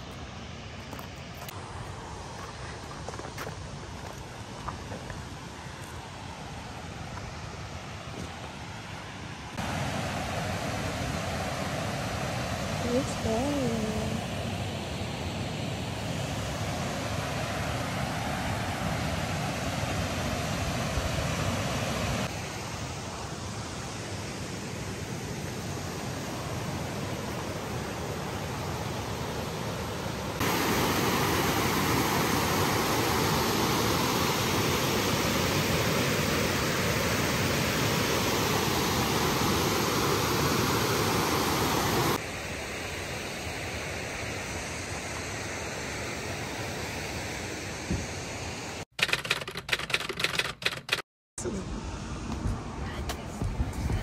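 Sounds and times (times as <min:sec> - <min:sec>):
waterfall rushing: 0:30.2 - 0:42.2.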